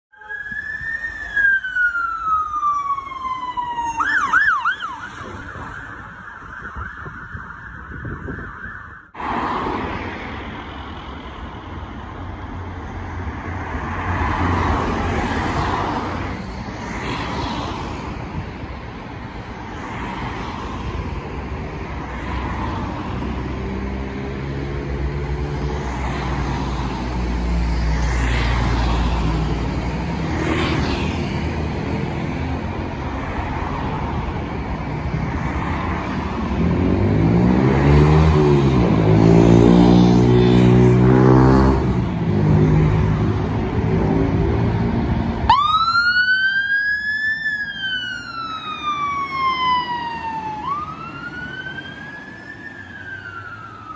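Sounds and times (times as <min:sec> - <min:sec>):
cars passing: 0:00.4 - 0:53.9
vehicle engine accelerating: 0:36.6 - 0:45.1.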